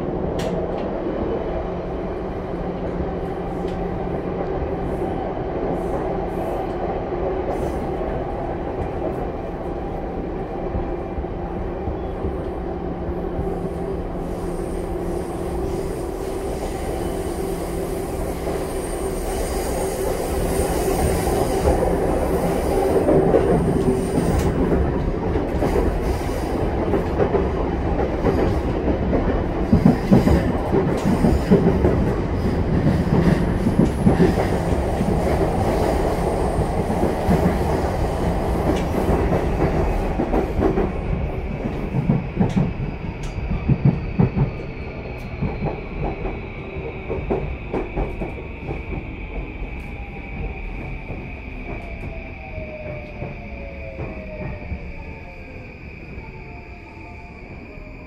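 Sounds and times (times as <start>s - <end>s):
train wheels rumbling on rails: 0.0s - 58.0s
rail joint clicks: 0.3s - 1.0s, 21.0s - 55.2s.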